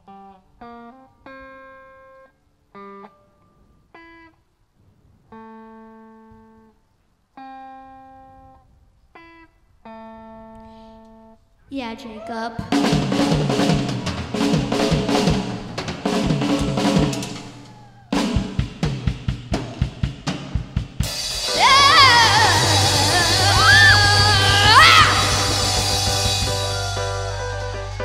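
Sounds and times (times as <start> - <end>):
drum fill: 12.6 - 27.6
drum roll: 12.6 - 28.0
live rock band: 12.6 - 28.0.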